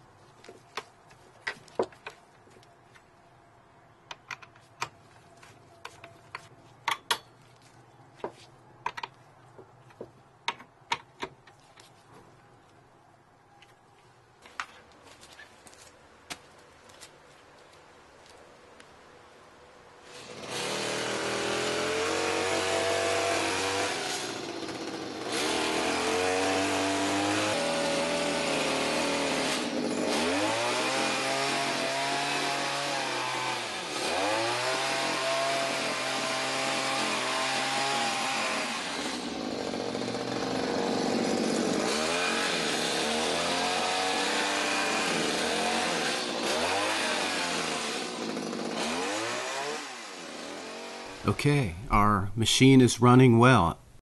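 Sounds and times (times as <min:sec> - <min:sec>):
hedge trimmer engine revving: 0:20.1 - 0:51.2.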